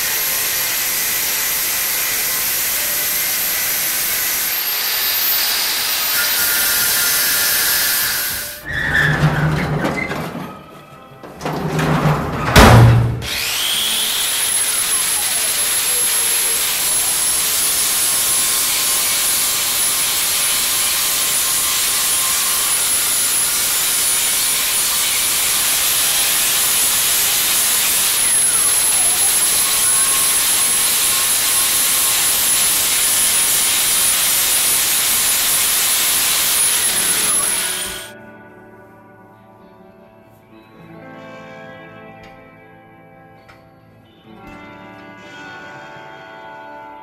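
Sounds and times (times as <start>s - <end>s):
high-speed grinder whine: 0.0s - 8.7s, 13.2s - 38.2s.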